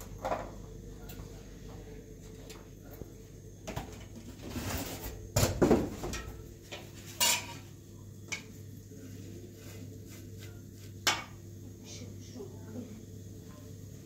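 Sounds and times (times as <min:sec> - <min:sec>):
steady low hum: 0:00.0 - 0:14.0
kitchenware clattering: 0:03.7 - 0:07.7, 0:11.0 - 0:11.4.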